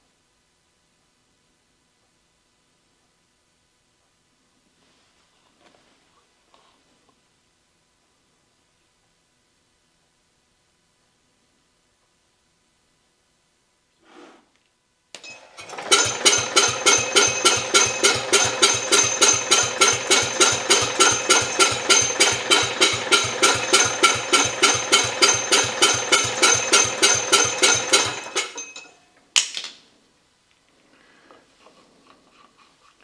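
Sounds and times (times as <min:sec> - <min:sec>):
engine cranking on starter: 0:15.2 - 0:28.9.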